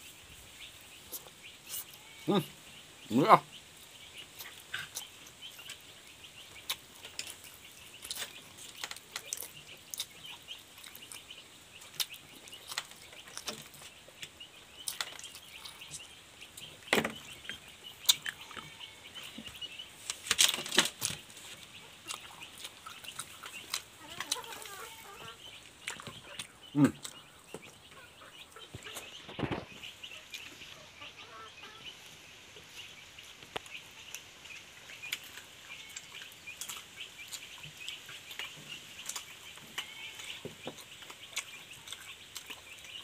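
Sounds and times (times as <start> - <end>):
chickens clucking: 0.0 - 43.0
wet chewing and lip-smacking: 4.3 - 5.8, 6.6 - 16.2, 22.0 - 24.7, 25.6 - 27.3, 35.0 - 43.0.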